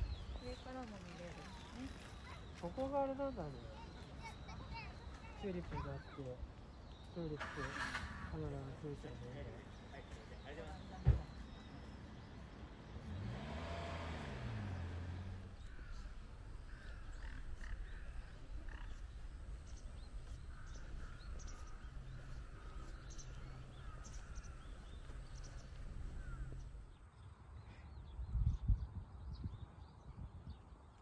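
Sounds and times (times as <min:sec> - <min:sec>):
small animals chirping: 0:15.5 - 0:26.8.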